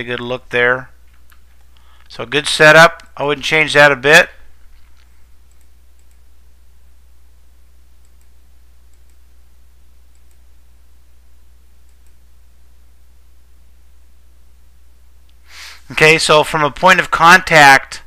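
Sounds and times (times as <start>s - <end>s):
low electrical hum and hiss: 0.0s - 18.0s
computer mouse clicks: 4.9s - 6.2s, 8.0s - 9.2s, 10.1s - 10.4s, 11.8s - 12.2s.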